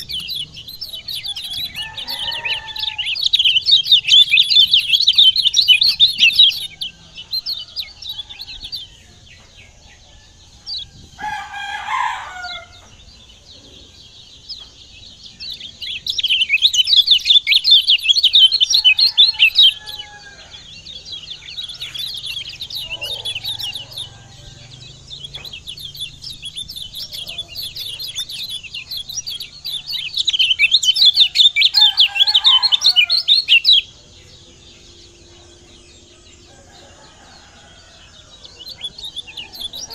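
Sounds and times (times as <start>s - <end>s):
rooster crowing: 0.0s - 9.2s, 10.0s - 12.9s, 18.4s - 28.3s, 31.2s - 39.9s
bird chattering song: 0.0s - 39.9s.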